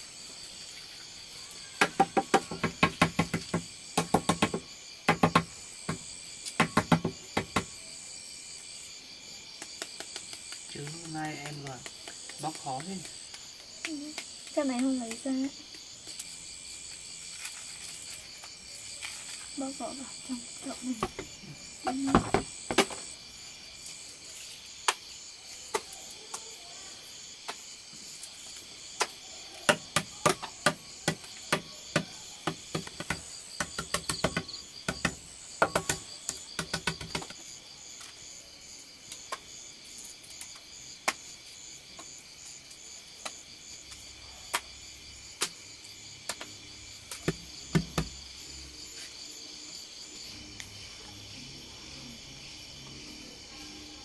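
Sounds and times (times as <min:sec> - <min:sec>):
insects chirring: 0:00.0 - 0:54.0
knocks and taps of food preparation: 0:01.8 - 0:07.8, 0:20.9 - 0:23.0, 0:29.7 - 0:37.4, 0:47.1 - 0:48.2.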